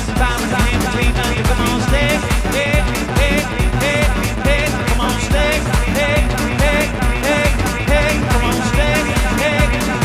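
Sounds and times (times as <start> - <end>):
kick-drum beat: 0.0 - 10.0
pitch-bending synthesizer riff: 0.0 - 10.0.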